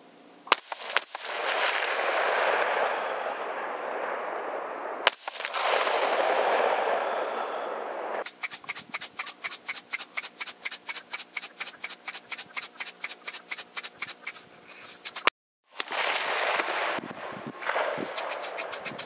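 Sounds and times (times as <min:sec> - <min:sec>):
rifle shot: 0:00.5 - 0:03.7, 0:05.0 - 0:07.7, 0:15.8 - 0:18.1
fast regular ticking: 0:08.2 - 0:15.3, 0:18.0 - 0:19.0.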